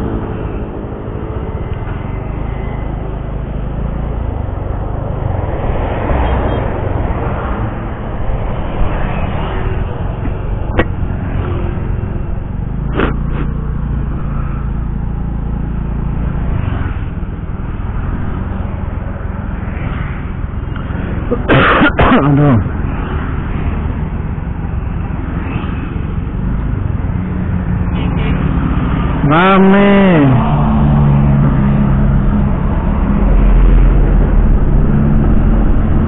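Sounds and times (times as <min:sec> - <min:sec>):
low road rumble: 0:00.0 - 0:36.0
person coughing: 0:21.3 - 0:22.6.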